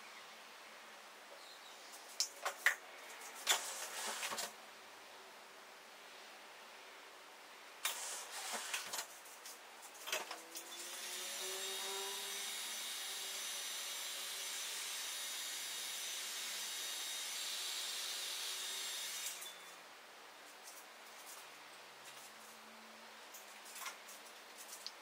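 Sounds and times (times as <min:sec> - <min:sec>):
air blower motor whine: 0:10.6 - 0:19.5.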